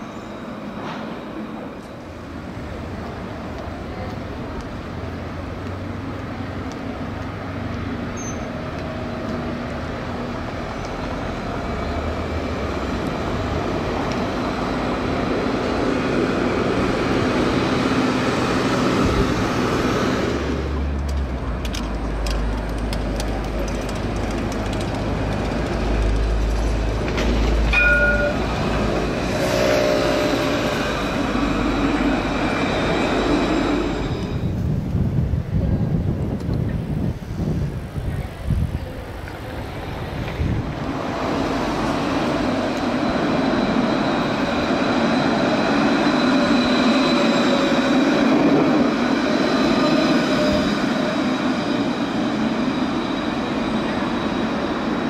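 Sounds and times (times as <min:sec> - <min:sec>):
tram rumbling on rails: 0:00.0 - 0:55.0
brief tone: 0:08.2 - 0:08.5, 0:27.7 - 0:28.4.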